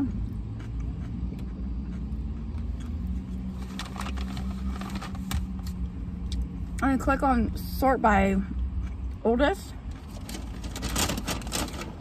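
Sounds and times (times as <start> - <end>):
chewing: 0.2 - 4.0, 8.5 - 9.2
takeout bowl rustling: 3.4 - 5.6.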